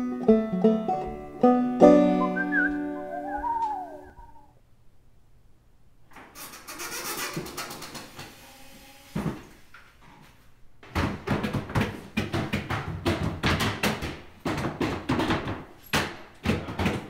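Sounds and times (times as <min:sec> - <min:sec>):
rapid knocks: 0:10.9 - 0:17.0.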